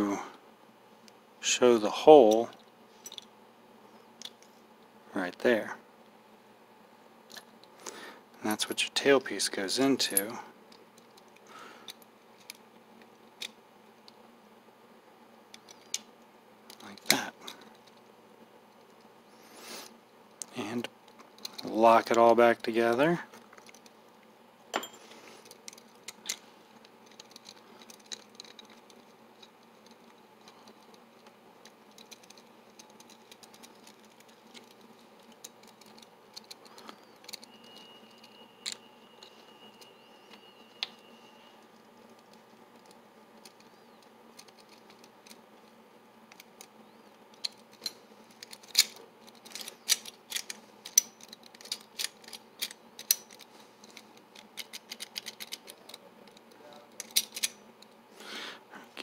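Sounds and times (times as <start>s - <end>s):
small metal parts clicking: 2.3s - 3.3s, 15.5s - 16.1s, 20.4s - 24.0s, 24.8s - 45.7s, 46.3s - 58.0s.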